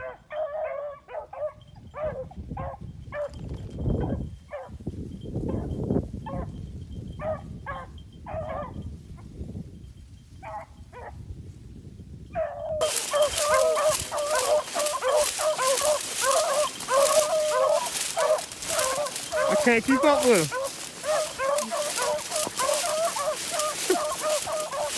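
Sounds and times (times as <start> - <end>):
beagles baying: 0.0 - 3.3, 7.2 - 8.8, 12.4 - 24.9.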